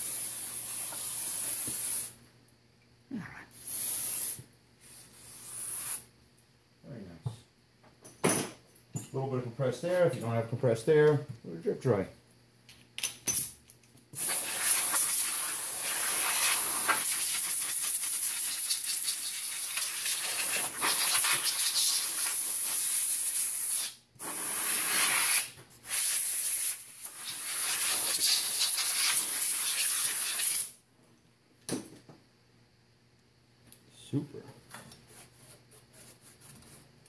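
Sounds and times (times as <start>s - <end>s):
compressed air blowgun hissing: 0.0s - 2.2s, 3.6s - 6.1s, 14.2s - 30.7s.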